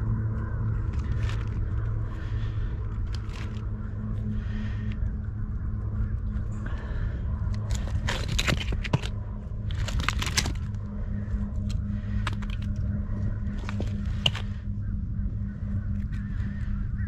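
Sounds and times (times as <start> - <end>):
steady low hum: 0.0 - 17.0
oyster shells clattering: 7.7 - 10.8.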